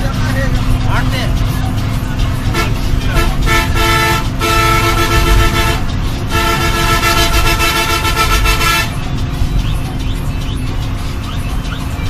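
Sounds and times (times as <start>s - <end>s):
bus engine and tyres rumbling: 0.0s - 12.0s
bus horn blasts: 2.3s - 9.2s.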